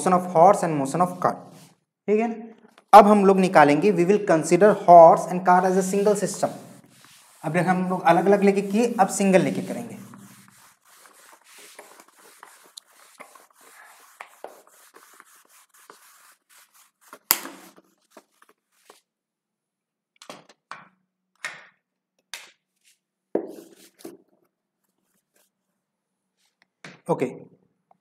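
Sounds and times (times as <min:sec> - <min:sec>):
duster rubbing on whiteboard: 0:05.5 - 0:19.0.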